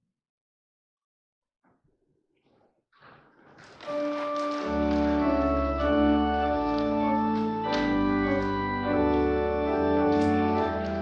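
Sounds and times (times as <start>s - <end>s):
church organ chords: 3.8s - 11.0s
deep organ bass notes: 4.5s - 11.0s.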